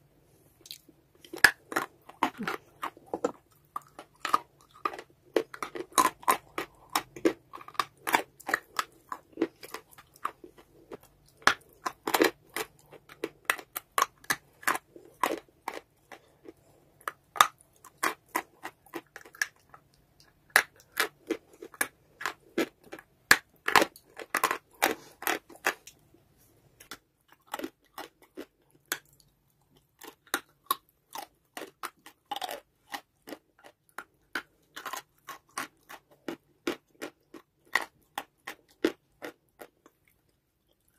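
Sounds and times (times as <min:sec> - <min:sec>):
crunchy chewing of clay: 0:00.3 - 0:40.9.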